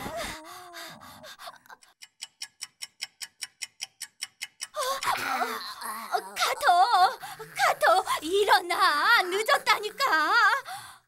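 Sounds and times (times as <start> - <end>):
clock ticking: 1.6 - 5.2.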